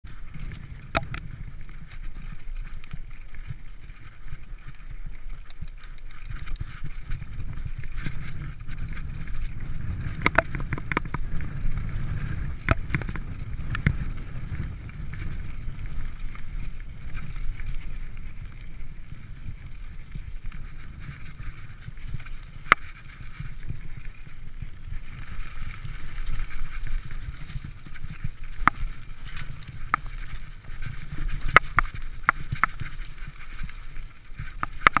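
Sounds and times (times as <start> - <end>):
wind over microphone: 0.0 - 35.0
bike knocks and rattles: 0.4 - 2.4, 5.5 - 15.9.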